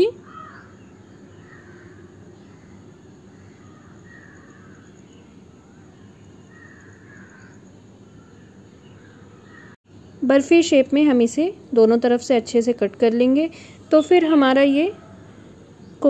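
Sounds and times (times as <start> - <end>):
low steady hiss: 0.0 - 16.0
crows cawing: 0.2 - 0.8, 1.4 - 2.7, 3.3 - 4.8, 6.5 - 7.6, 9.0 - 9.8.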